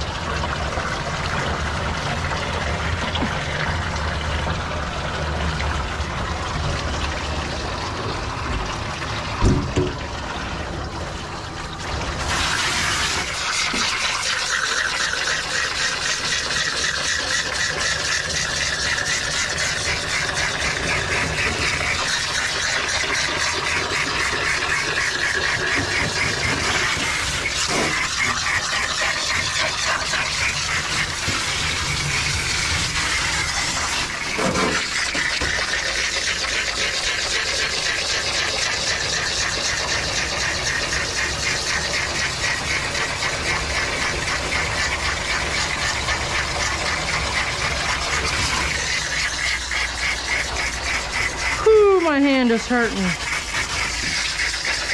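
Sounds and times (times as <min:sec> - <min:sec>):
grooming vacuum running: 0:11.8 - 0:35.9, 0:39.4 - 0:54.9.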